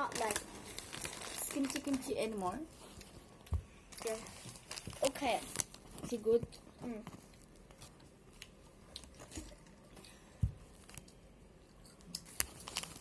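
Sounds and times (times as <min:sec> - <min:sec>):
soft chewing: 0:06.4 - 0:12.6.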